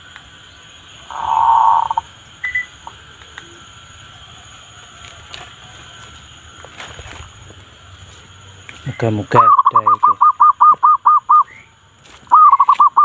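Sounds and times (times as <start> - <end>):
small ticks: 0.0 - 0.3, 2.6 - 3.5
dove call from speaker: 1.0 - 2.1, 8.9 - 11.6, 12.3 - 13.0.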